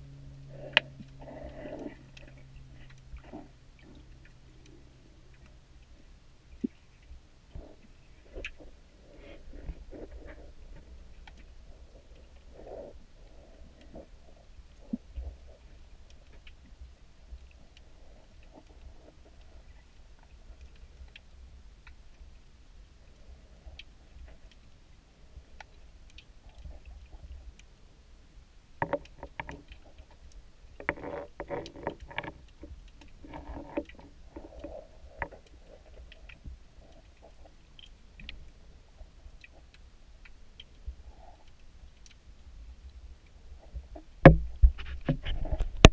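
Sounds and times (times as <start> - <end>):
underwater rumble of moving water: 0.0 - 45.9
faint clicks: 0.3 - 45.9.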